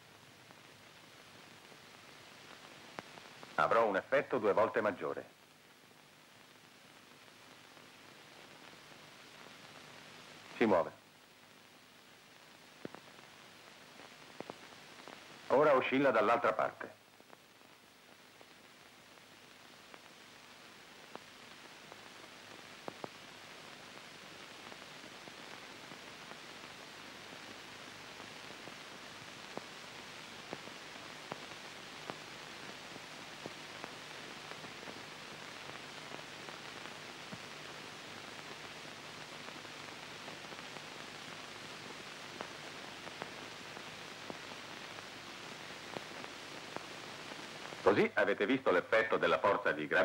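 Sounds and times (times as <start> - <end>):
film soundtrack hiss: 0.0 - 50.0
faint clicks and pops: 0.4 - 3.6, 11.3 - 15.5, 16.8 - 48.1.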